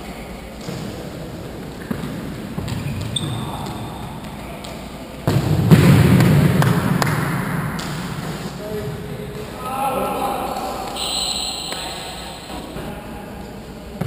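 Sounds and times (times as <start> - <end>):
shoe squeak: 2.8 - 4.1, 11.0 - 12.8.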